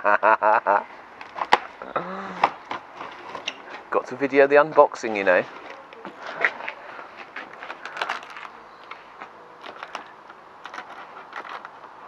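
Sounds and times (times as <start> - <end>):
parcel tape crackling and scratching: 1.2 - 4.0, 5.3 - 12.0.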